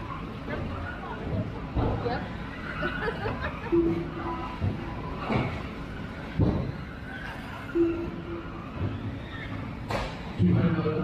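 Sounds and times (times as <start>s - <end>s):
short steady tone: 7.8s - 8.5s.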